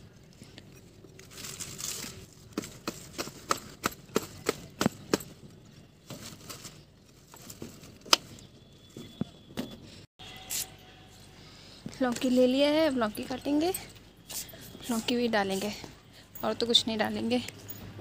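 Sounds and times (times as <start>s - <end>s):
leaves rustling: 1.0s - 2.9s.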